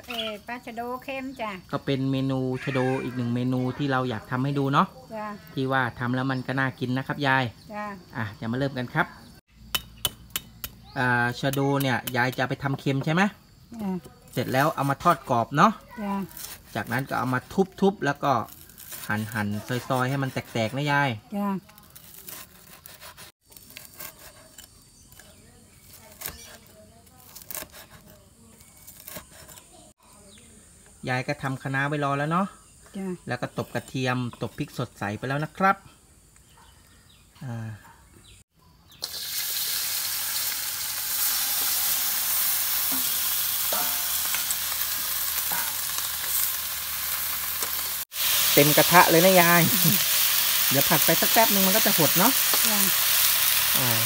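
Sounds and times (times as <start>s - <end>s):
cleaver chopping on wooden block: 9.7s - 10.8s
food sizzling in a wok: 38.9s - 54.0s.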